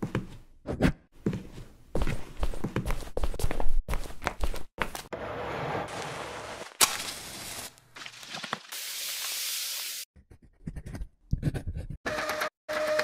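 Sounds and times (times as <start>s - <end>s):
hiss: 8.8s - 10.0s.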